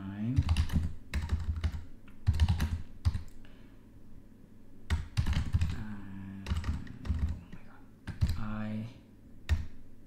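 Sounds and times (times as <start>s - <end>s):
typing on computer keyboard: 0.4s - 3.4s, 4.9s - 5.8s, 6.4s - 8.5s.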